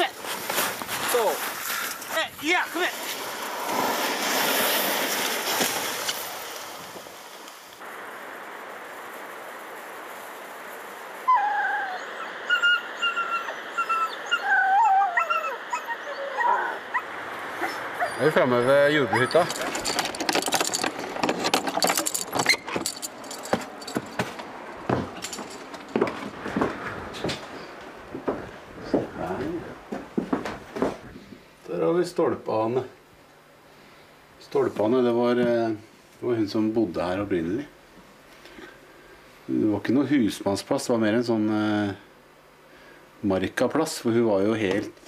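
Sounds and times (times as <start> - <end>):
sled scraping and hissing over snow: 0.1 - 11.3, 16.5 - 23.6
keys jangling: 19.4 - 24.4, 25.2 - 26.1.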